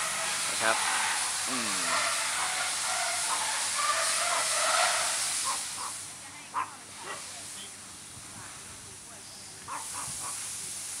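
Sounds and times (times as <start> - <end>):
wind noise on microphone: 9.6 - 10.5.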